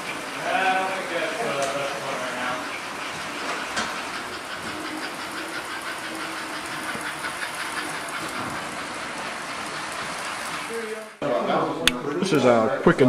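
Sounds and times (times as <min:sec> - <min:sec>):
model train wheels clicking on rails: 0:00.0 - 0:11.2.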